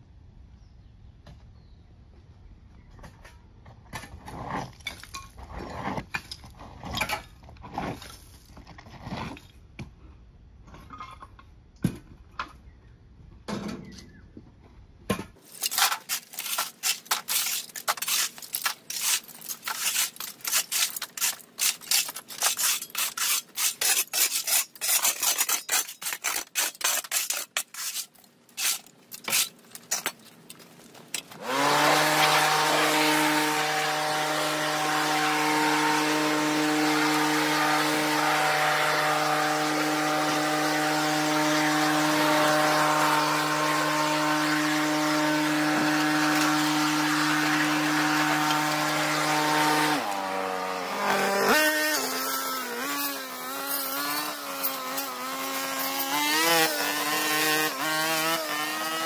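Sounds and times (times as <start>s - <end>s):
shovel and rake scraping dirt: 3.9s - 9.6s, 15.4s - 59.0s
petrol leaf blower: 31.2s - 59.0s.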